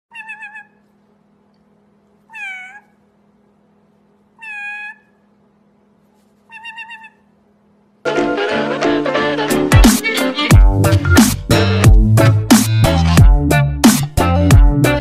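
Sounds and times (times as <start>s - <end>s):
parrot meow-like calls: 0.1s - 0.8s, 2.3s - 3.0s, 4.4s - 5.3s, 6.5s - 7.3s.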